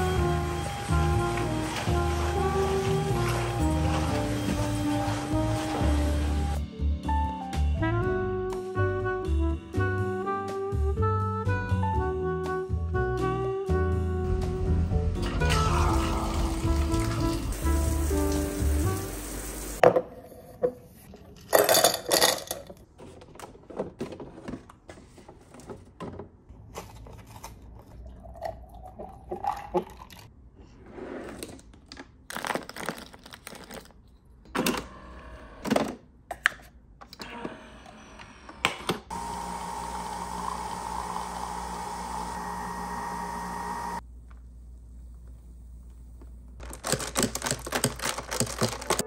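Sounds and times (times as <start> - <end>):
kitchen appliance humming: 0.0 - 6.6, 39.1 - 44.0.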